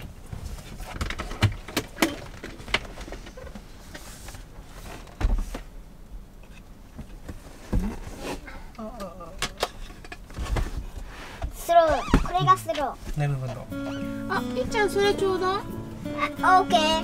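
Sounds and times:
bed panels knocking and clicking: 0.0s - 4.0s.

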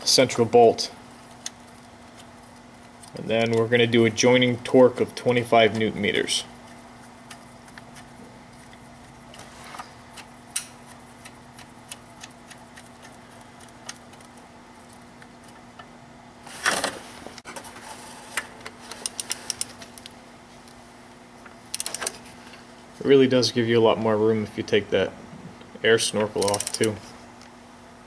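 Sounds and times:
faint steady hum: 0.0s - 28.0s
metallic clicks of hand tools: 26.4s - 27.0s.

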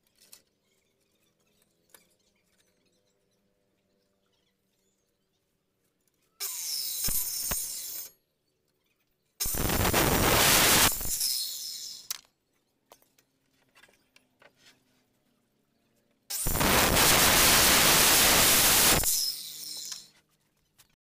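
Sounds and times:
circular saw cutting wood: 6.4s - 8.1s, 16.3s - 20.1s.

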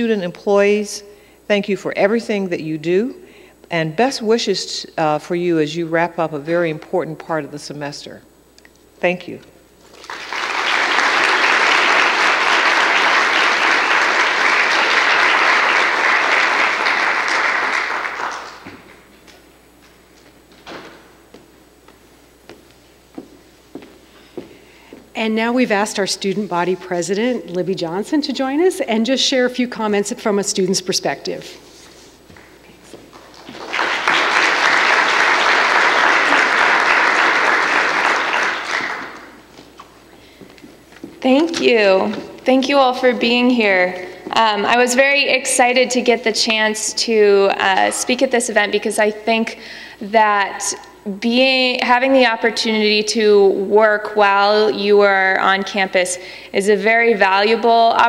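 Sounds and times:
audience applauding: 9.9s - 18.9s, 33.2s - 39.5s.

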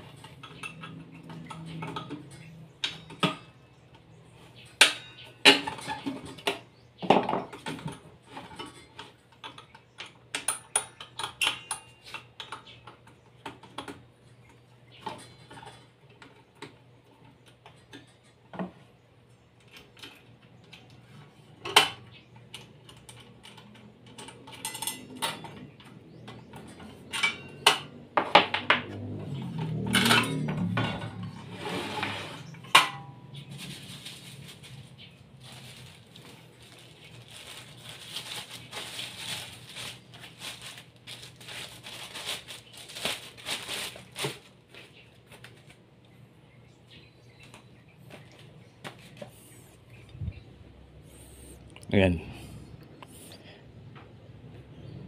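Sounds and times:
metal tools clinking and knocking: 21.6s - 31.4s.

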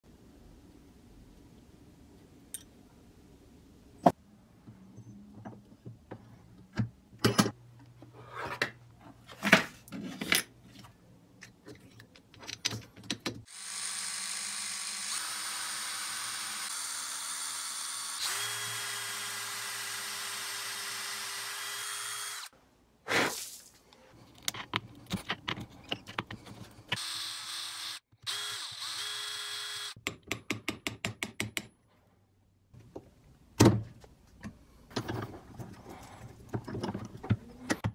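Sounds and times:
clicks and knocks of tools: 11.4s - 13.4s
power drill boring wood: 13.5s - 22.5s, 27.0s - 30.0s.

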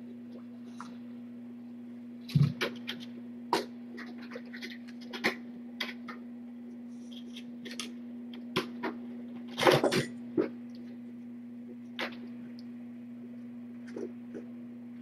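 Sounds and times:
steady low hum: 0.0s - 15.0s
kittens scratching and knocking: 2.3s - 6.3s.

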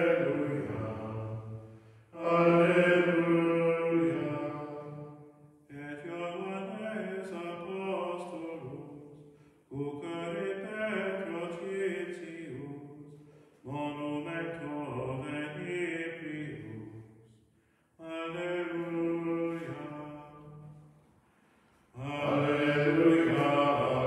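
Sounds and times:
men singing a chant: 0.0s - 1.3s, 2.2s - 4.9s, 22.0s - 24.0s.

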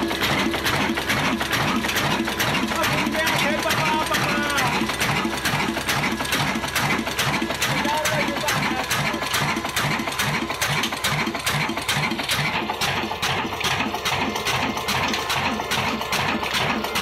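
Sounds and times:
diesel engine running slowly: 0.0s - 17.0s.

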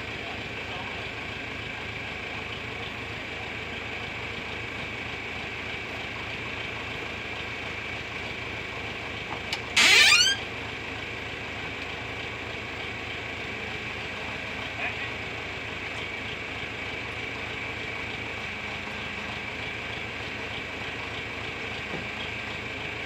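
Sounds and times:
tractor engine idling: 0.0s - 23.0s
short rising squeal: 9.7s - 10.5s.

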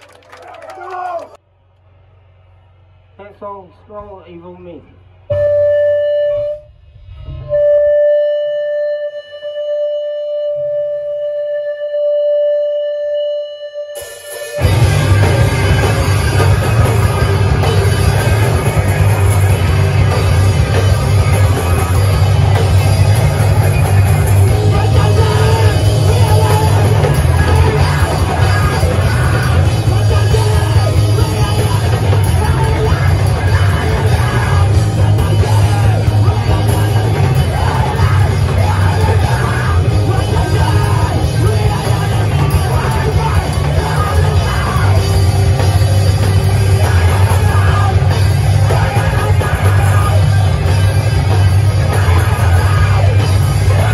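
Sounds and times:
live rock band playing: 14.0s - 53.9s
yelled vocals: 14.6s - 53.9s.

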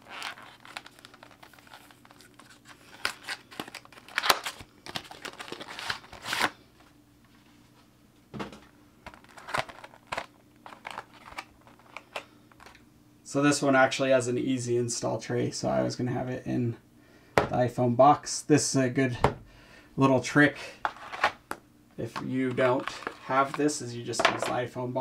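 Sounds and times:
plastic tray crinkling: 0.0s - 6.5s, 9.1s - 12.8s, 22.0s - 24.6s
cardboard packaging tearing: 0.0s - 6.6s, 9.1s - 12.0s.

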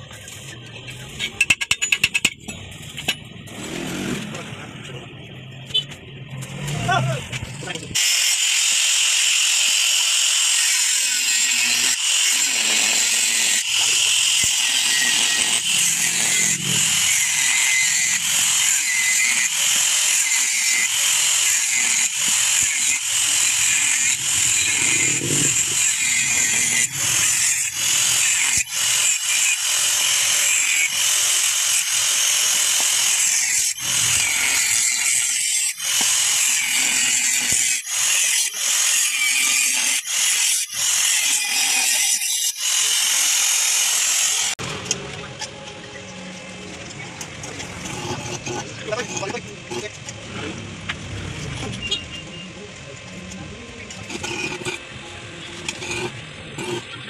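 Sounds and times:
angle grinder cutting metal: 7.9s - 44.6s, 47.5s - 50.0s, 53.9s - 57.0s.

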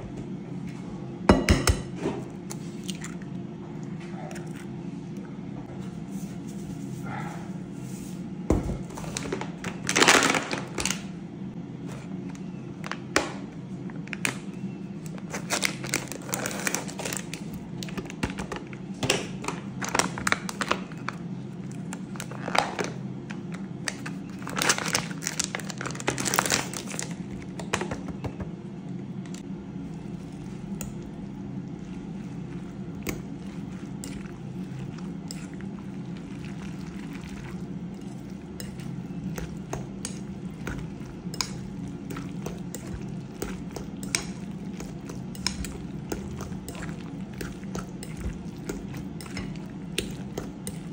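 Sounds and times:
steady low hum: 0.0s - 50.9s
plastic packet crinkling: 9.4s - 11.0s, 23.9s - 27.2s.

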